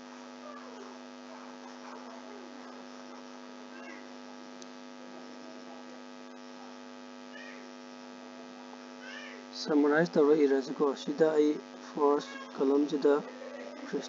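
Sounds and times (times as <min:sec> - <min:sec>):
mains hum: 0:00.0 - 0:14.0.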